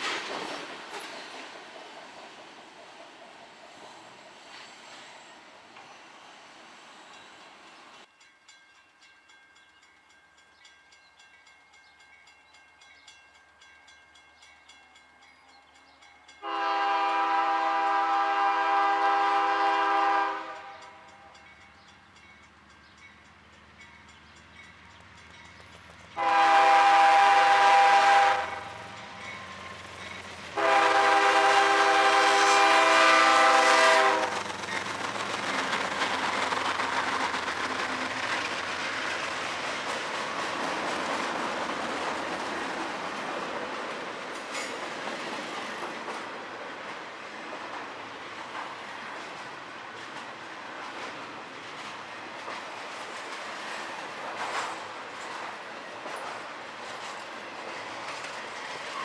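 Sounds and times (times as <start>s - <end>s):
train wheels rumbling on rails: 0.0s - 59.0s
locomotive air horn blasts: 16.4s - 21.1s, 26.2s - 28.8s, 30.6s - 34.3s.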